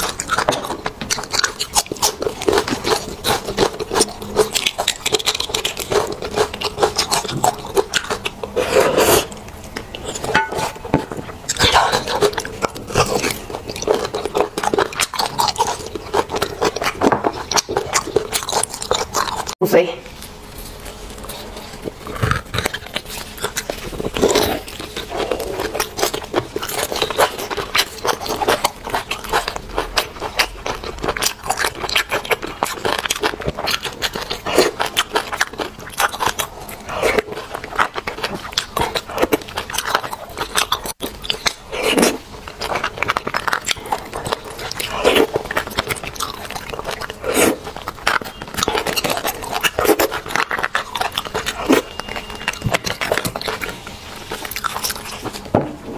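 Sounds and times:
wet chewing and mouth clicks: 0.0s - 19.6s, 20.2s - 55.6s
metal spoon scraping bone: 2.6s - 15.0s.

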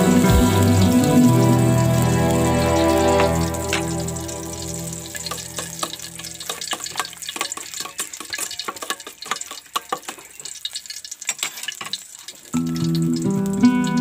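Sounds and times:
soft background music: 0.0s - 6.2s
oil crackling in a wok: 0.0s - 14.0s.

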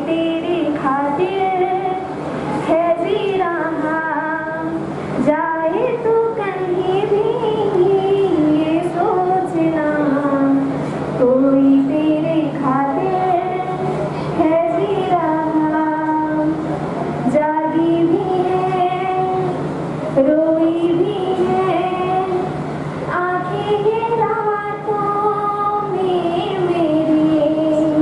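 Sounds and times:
woman singing: 0.0s - 2.1s, 2.7s - 13.8s, 14.4s - 16.6s, 17.2s - 19.6s, 20.2s - 22.5s, 23.1s - 28.0s.

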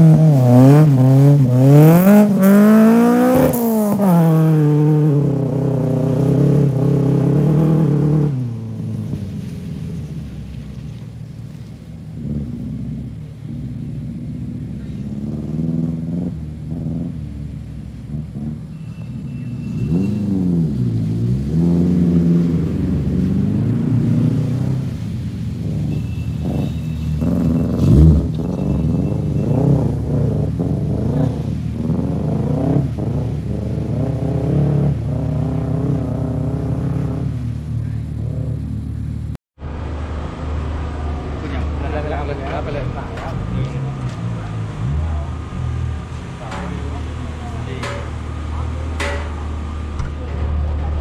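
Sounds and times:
rally car engine revving: 0.0s - 51.0s
loud thump: 46.4s - 51.0s.

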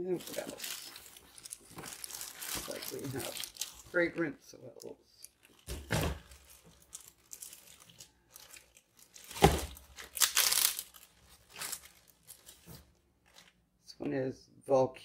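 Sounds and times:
plastic bag crinkling: 0.0s - 13.6s
bag thumping on cutting board: 9.3s - 9.8s.

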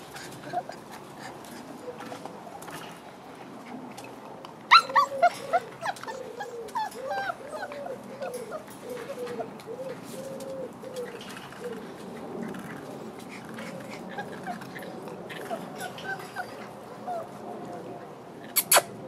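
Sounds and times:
puppies whimpering: 0.2s - 2.0s, 4.7s - 10.0s, 13.4s - 17.9s
puppies yelping: 4.7s - 10.8s, 11.7s - 17.4s.

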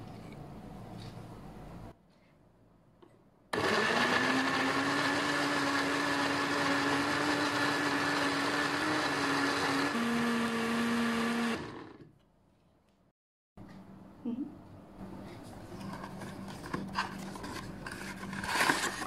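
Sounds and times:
blender motor running: 3.6s - 12.1s.

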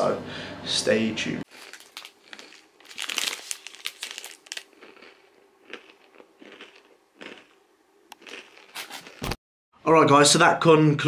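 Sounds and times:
plastic wrapper crinkling: 1.5s - 6.2s.

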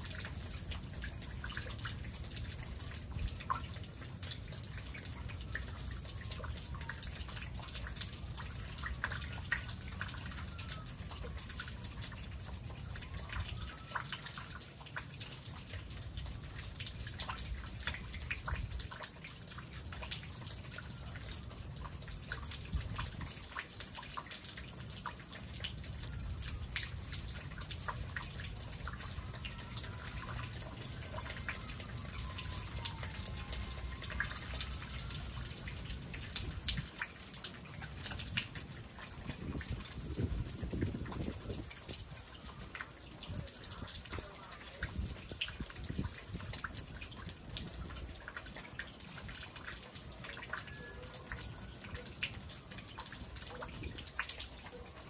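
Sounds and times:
melting ice dripping: 0.0s - 55.0s
faint whistles: 50.7s - 51.6s.

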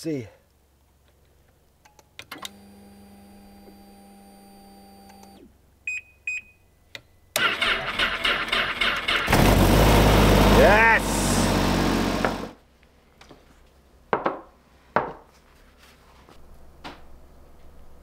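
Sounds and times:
short electronic beeps: 5.9s - 6.6s
electric starter cranking engine: 7.4s - 12.6s
snowmobile engine running loudly: 9.3s - 12.5s.

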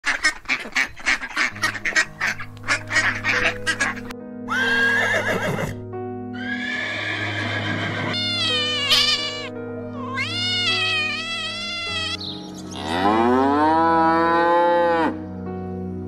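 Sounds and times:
ducks quacking: 0.0s - 4.1s, 8.2s - 13.6s
background music with low drone: 0.4s - 16.0s
horse whinnying: 4.5s - 5.8s, 6.4s - 9.5s.

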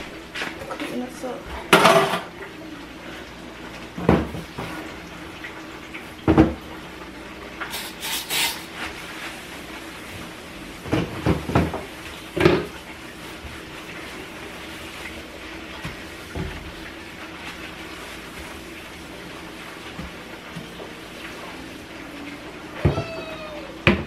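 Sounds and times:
paper towel rustling: 7.8s - 10.8s, 13.1s - 22.4s.

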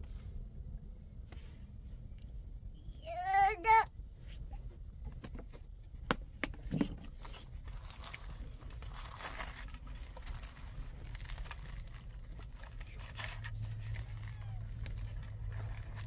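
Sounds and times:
rustling and crinkling: 6.6s - 16.0s.

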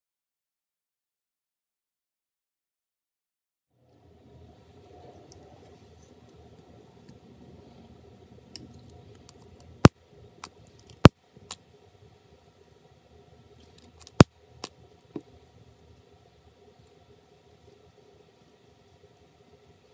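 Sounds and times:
plastic parts clicking: 13.8s - 14.3s.

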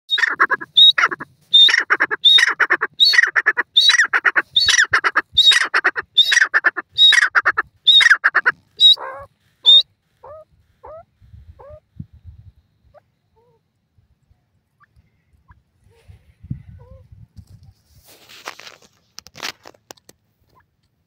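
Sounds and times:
francolin calling: 0.1s - 11.8s.

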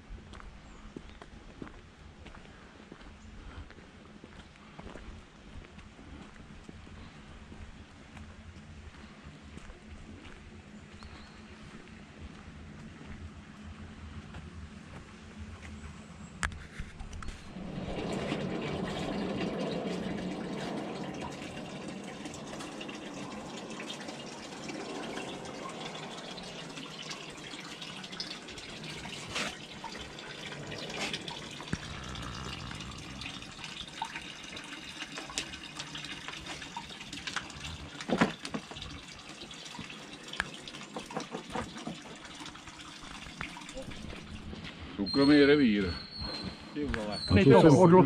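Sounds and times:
water running into stone basin: 17.5s - 44.6s.

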